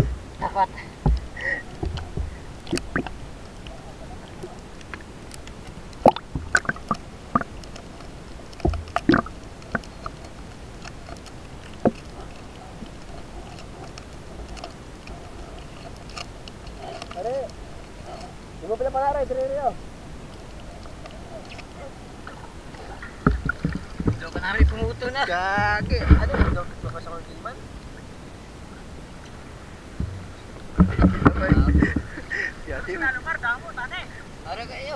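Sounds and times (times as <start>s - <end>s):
muffled underwater hiss: 0.0s - 34.9s
sharp clicks and knocks: 23.0s - 25.0s.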